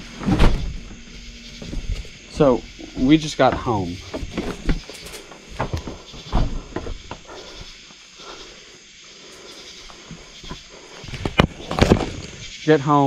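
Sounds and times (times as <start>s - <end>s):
night insects hissing: 0.0s - 13.0s
footsteps and knocks: 0.1s - 7.8s.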